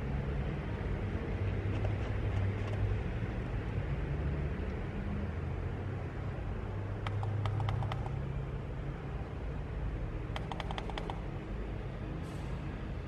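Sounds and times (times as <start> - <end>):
control knob clicking: 7.0 - 8.1.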